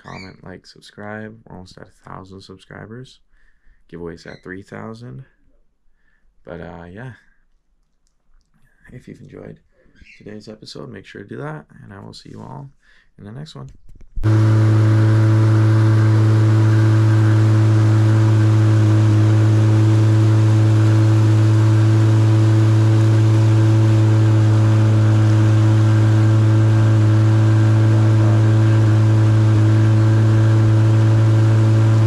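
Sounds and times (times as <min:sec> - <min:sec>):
outboard motor running: 0:14.2 - 0:32.0.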